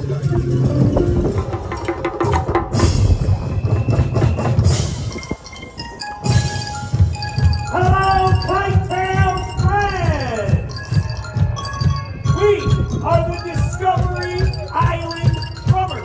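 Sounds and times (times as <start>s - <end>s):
drums: 0.0s - 16.0s
bell-like tones: 2.8s - 16.0s
melodic line: 4.6s - 16.0s.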